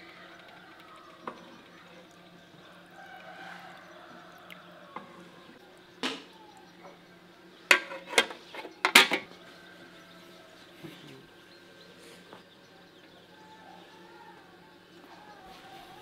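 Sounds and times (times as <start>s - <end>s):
metal lid clanking: 7.7s - 9.3s.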